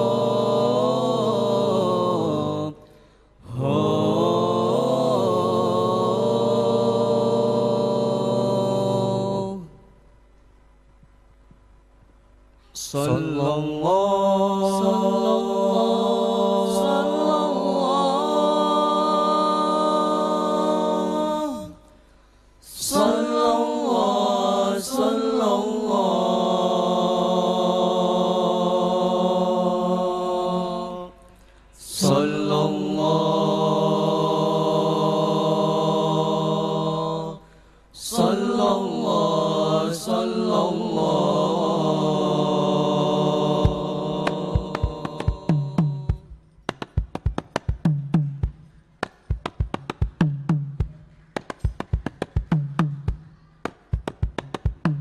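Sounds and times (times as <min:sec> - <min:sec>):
group chanting: 0:00.0 - 0:09.9, 0:12.9 - 0:21.9, 0:22.6 - 0:46.3.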